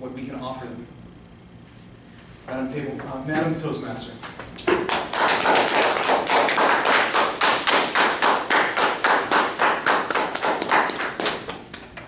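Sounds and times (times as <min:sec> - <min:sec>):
audience applauding: 0:04.8 - 0:11.6.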